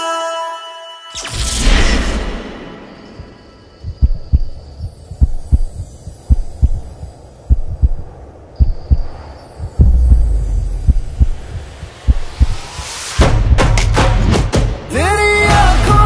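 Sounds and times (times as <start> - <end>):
heartbeat thumps: 3.2 - 13.9.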